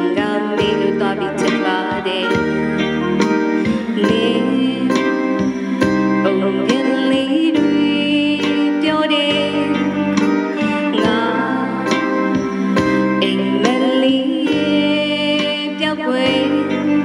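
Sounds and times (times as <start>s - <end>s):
electric guitar: 0.0s - 17.0s
electronic keyboard: 0.0s - 17.0s
steady beat: 0.6s - 7.7s, 10.0s - 14.1s.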